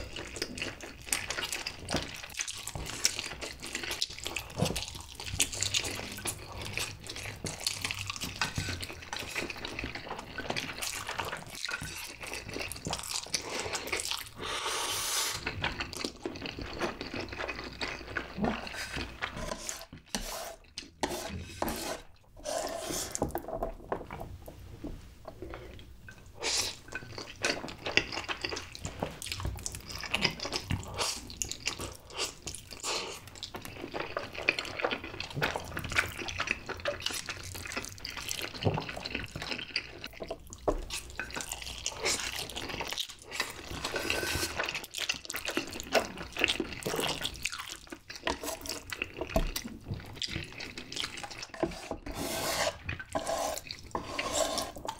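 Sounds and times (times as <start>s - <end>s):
wet noodle slurping and chewing: 0.0s - 23.4s, 25.5s - 54.9s
chopsticks stirring noodles: 33.8s - 54.9s.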